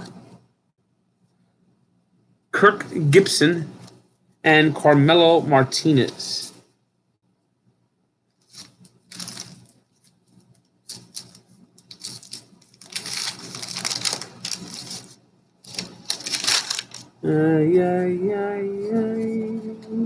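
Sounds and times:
cards rustling and clicking: 8.4 - 17.1
pitched humming sound: 17.0 - 20.0.

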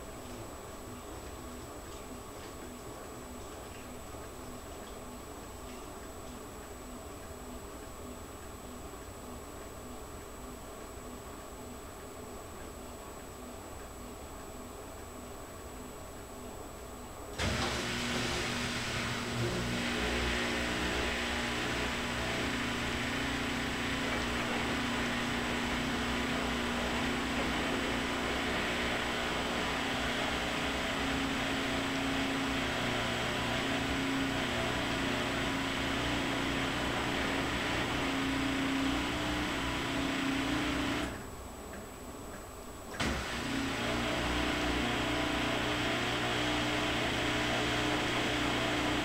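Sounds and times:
washing machine drum motor humming: 17.3 - 41.9, 42.9 - 49.0
wet laundry churning: 17.4 - 41.2, 43.0 - 49.0.

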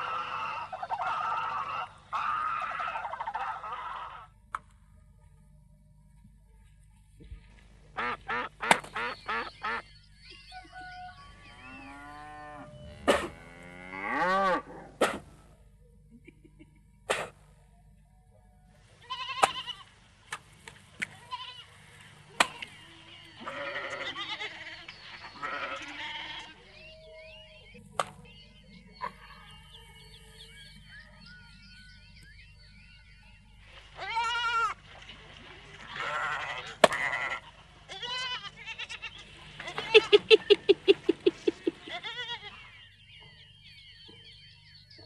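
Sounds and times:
pitched animal calls: 0.0 - 4.4, 22.3 - 27.8, 35.8 - 42.7.

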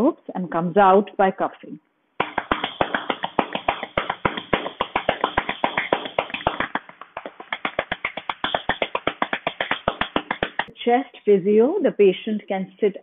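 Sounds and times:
gloved hands clapping on a back: 2.2 - 10.7.

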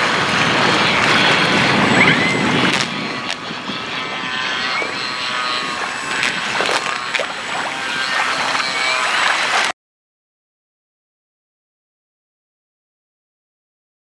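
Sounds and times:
electric motor propeller whining: 0.0 - 9.7
wind buffeting microphone: 0.0 - 9.7.

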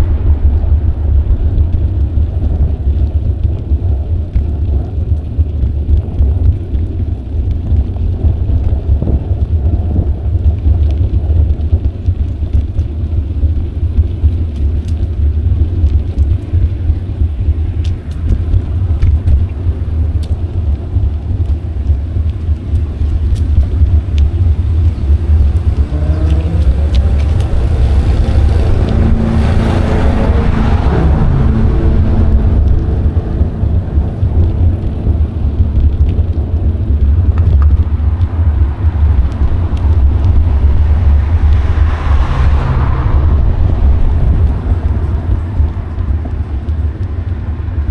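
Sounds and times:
wind rumble on microphone: 0.0 - 47.9
motor vehicle passing: 23.0 - 47.8.

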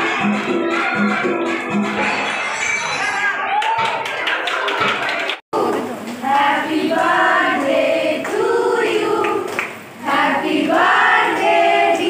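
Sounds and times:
women singing together: 5.6 - 12.0.

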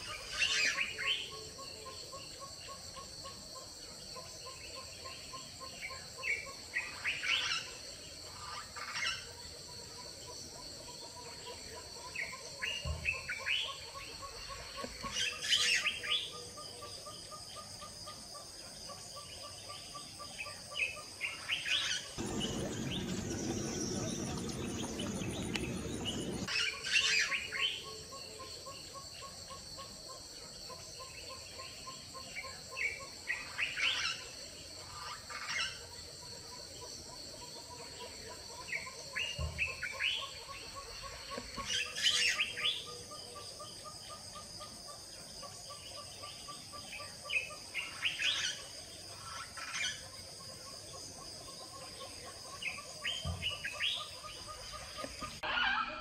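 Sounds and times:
evenly pulsing call: 22.2 - 26.5
rushing noise: 22.2 - 26.5
birds chirping: 22.2 - 26.7.

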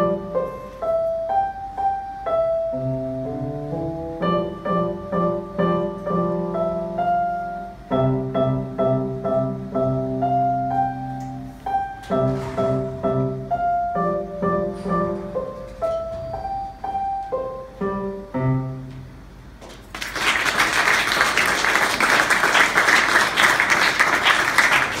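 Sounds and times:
digital piano melody: 0.0 - 19.4
applause: 19.7 - 25.0.

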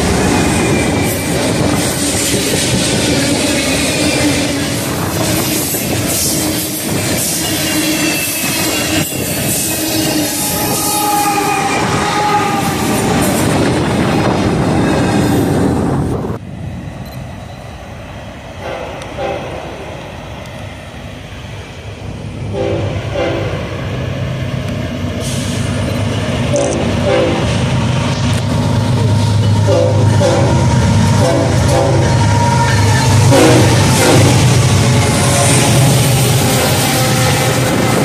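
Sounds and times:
diesel locomotive engine: 0.0 - 38.0
train air horn blasts: 5.5 - 13.0, 22.5 - 23.7, 26.5 - 27.6, 29.6 - 35.6, 36.4 - 38.0.

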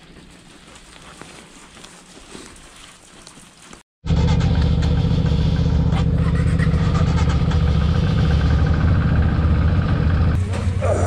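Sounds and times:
motorcycle engine idling: 4.1 - 10.8.

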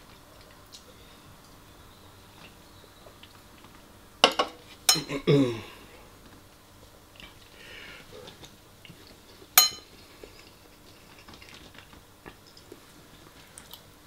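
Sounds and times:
faint chewing: 0.0 - 1.6, 6.2 - 13.9
metal spoon clinking on bowl: 9.6 - 9.9.

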